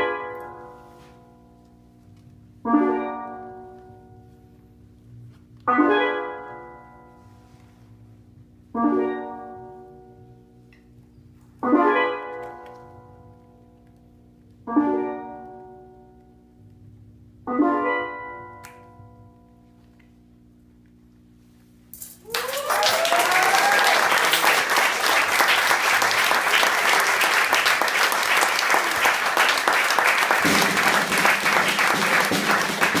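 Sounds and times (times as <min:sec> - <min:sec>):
audience whooping: 0:22.2 - 0:33.0
audience applause: 0:22.3 - 0:33.0
steel pan and band chords: 0:30.4 - 0:33.0.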